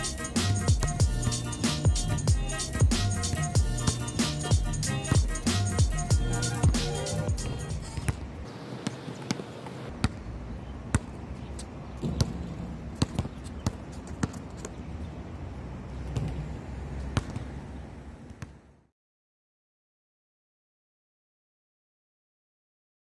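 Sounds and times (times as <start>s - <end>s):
basketball bouncing on court: 8.8s - 10.3s, 10.9s - 11.2s, 12.0s - 14.9s, 16.1s - 17.6s, 18.2s - 18.6s.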